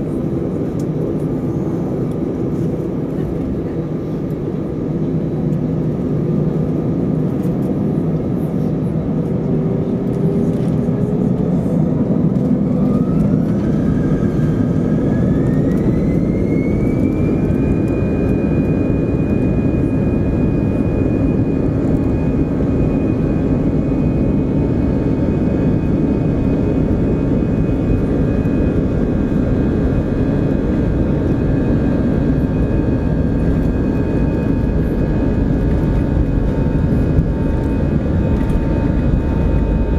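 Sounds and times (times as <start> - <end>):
jet engine whine rising: 0.0 - 39.9
loud jet engine rumble: 0.0 - 39.9.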